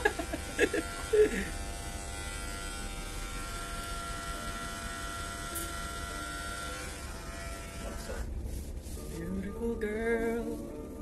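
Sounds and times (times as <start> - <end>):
electric hair clippers buzzing: 0.0 - 8.3.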